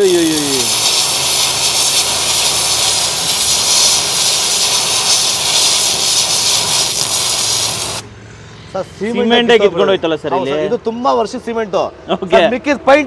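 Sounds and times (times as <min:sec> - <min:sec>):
pressure washer water spray hissing: 0:00.0 - 0:08.1.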